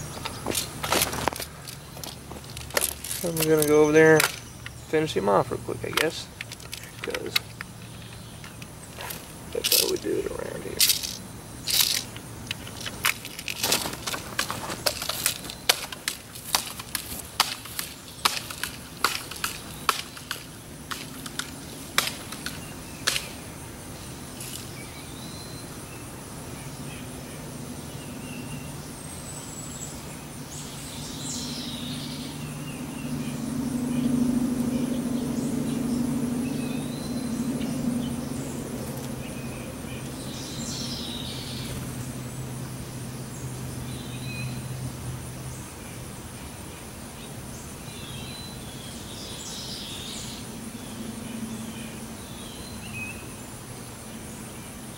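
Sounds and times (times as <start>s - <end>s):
footsteps crunching dry litter: 0.0s - 4.4s, 8.0s - 22.7s
low motor hum: 30.8s - 45.8s.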